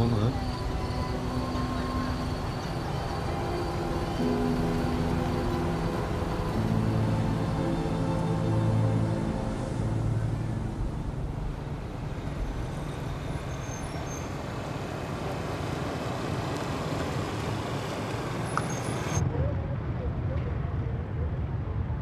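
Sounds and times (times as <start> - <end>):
motor scooter engine hum: 0.0 - 12.6
road and traffic noise: 0.0 - 22.0.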